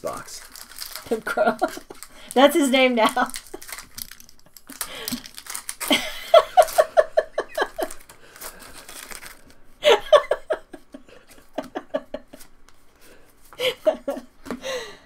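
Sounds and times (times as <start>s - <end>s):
wrapper crinkling: 0.0s - 9.7s
person laughing: 5.8s - 8.0s, 9.8s - 12.5s, 13.6s - 14.8s.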